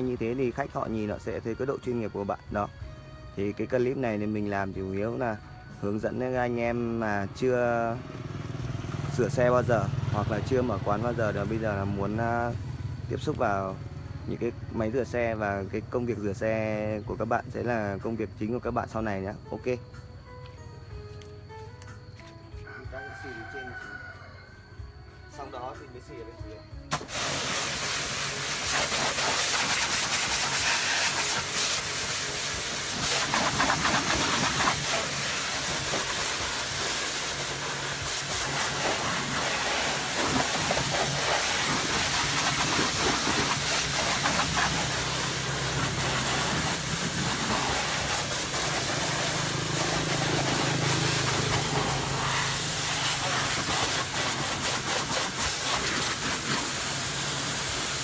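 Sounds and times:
pressure washer jet hissing: 0:26.9 - 0:58.0.

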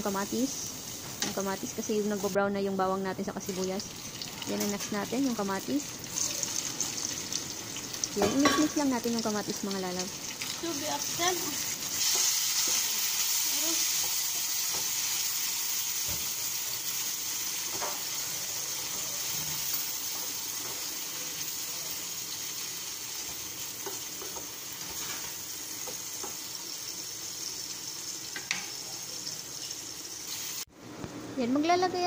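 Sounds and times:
vegetables sizzling in hot oil: 0:00.0 - 0:30.7
spatula stirring in a pan: 0:10.3 - 0:15.3.

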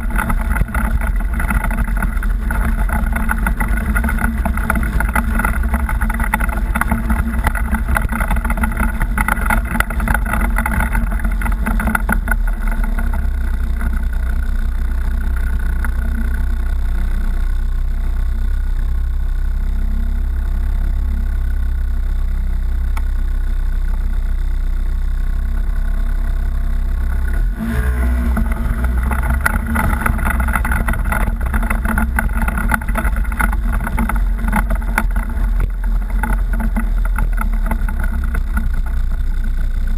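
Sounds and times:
off-road vehicle engine running: 0:00.0 - 0:39.9.

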